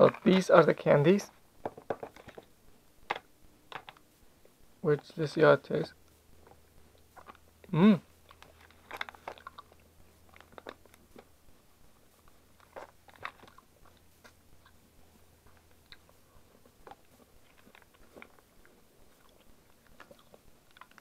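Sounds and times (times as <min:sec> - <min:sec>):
candy crunching while chewed: 0:06.3 - 0:21.0
person humming: 0:07.7 - 0:08.1.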